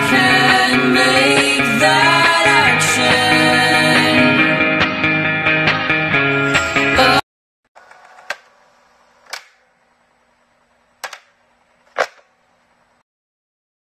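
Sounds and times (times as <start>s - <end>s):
sharp clicks or knocks: 7.8s - 8.6s, 9.2s - 9.7s, 11.0s - 12.4s.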